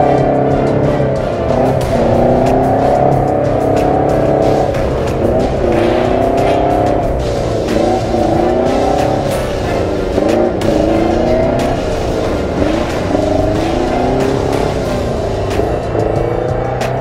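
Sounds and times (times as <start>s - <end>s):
jeep engine revving in mud: 0.0s - 17.0s.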